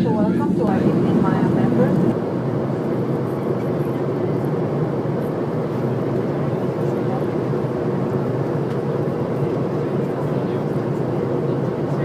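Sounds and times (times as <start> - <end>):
airliner cabin engine rumble: 0.0 - 12.0.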